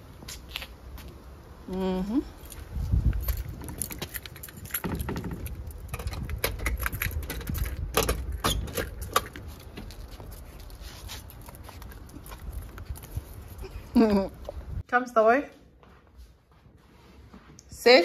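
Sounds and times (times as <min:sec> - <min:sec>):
glass door clicking and rattling: 0:03.4 - 0:09.4.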